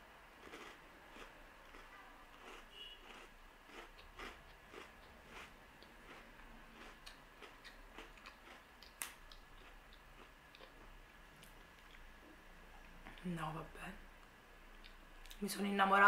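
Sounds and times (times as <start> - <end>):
chewing crunchy cookie: 0.4 - 12.1.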